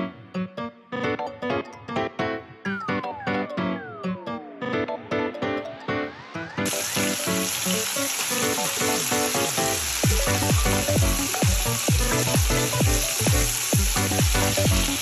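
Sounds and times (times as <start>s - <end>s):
background music: 0.0s - 15.0s
calamari sizzling in hot oil: 6.6s - 15.0s.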